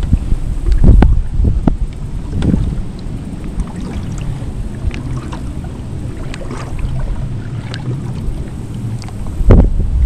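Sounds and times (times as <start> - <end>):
waves lapping against boat hull: 0.0 - 10.0
wind rumbling on microphone: 0.0 - 10.0
small splashes: 2.2 - 9.4.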